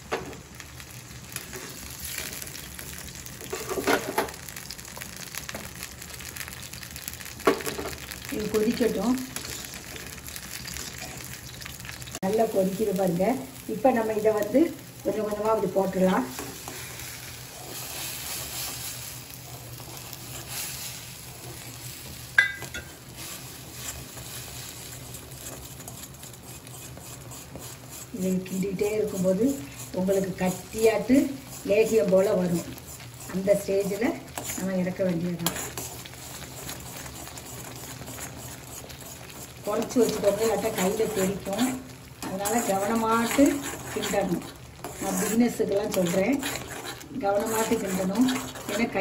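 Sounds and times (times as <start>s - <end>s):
syrup sizzling and bubbling: 0.0s - 49.0s
spoon scraping pan: 22.4s - 49.0s.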